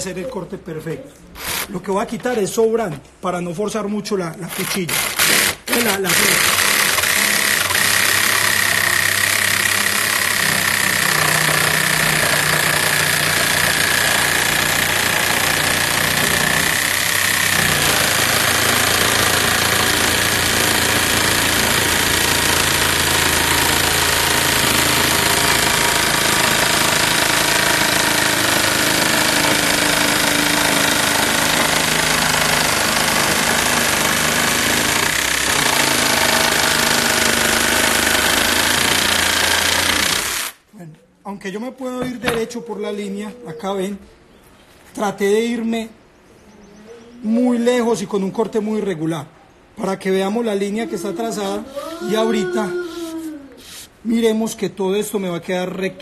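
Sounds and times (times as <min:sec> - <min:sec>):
jigsaw cutting board: 0:01.4 - 0:01.7, 0:04.5 - 0:40.6.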